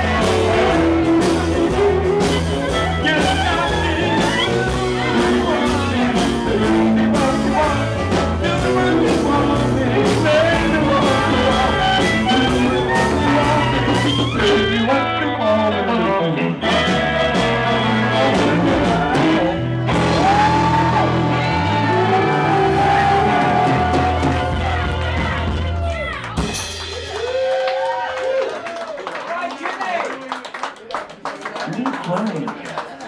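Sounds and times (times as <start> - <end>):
person singing: 0.0 - 25.5
electric guitar: 0.0 - 27.5
bass: 0.0 - 28.9
drums: 0.0 - 29.0.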